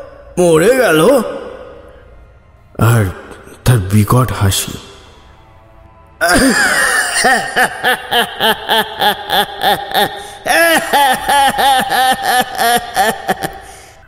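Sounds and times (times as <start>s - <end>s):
cackling creature laugh: 6.2s - 13.9s.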